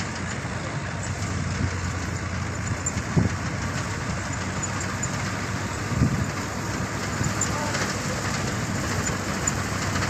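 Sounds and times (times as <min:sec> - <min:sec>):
tractor engine running: 0:00.0 - 0:10.0.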